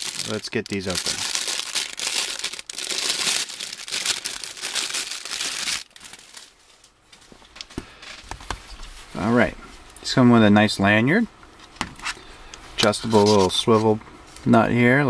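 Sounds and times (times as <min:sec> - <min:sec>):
plastic bag crinkling: 0:00.0 - 0:06.9.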